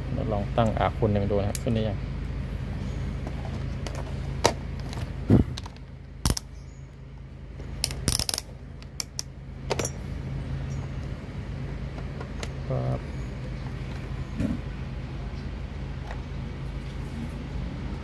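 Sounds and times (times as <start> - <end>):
steady low hum: 0.0 - 18.0
metal parts clicking and clinking: 7.8 - 10.0.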